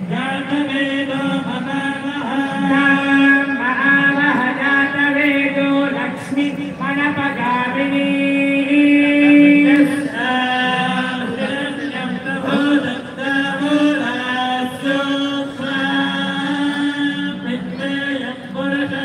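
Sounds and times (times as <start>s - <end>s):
devotional chanting in held notes: 0.0s - 19.0s.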